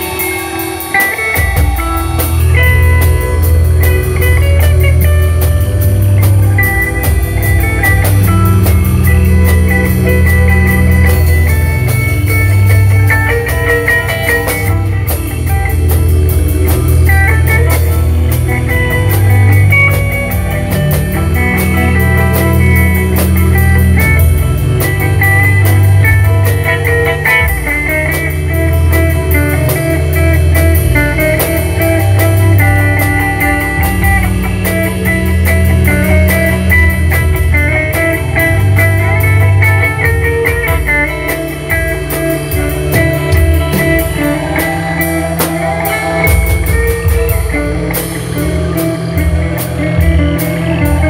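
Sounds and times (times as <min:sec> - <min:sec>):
rock music with guitar and drums: 0:00.0 - 0:51.0.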